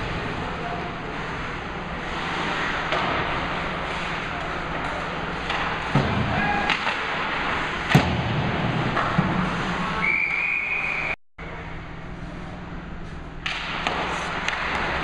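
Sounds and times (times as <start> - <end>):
sticks and puck clacking: 2.0 - 10.1, 13.4 - 15.0.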